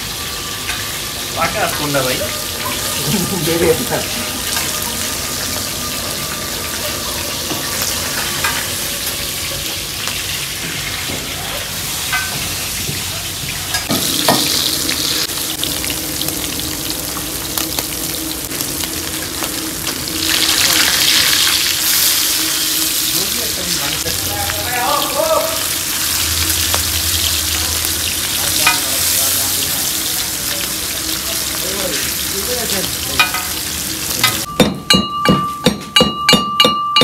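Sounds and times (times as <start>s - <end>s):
fish sizzling in oil: 0.0s - 34.5s.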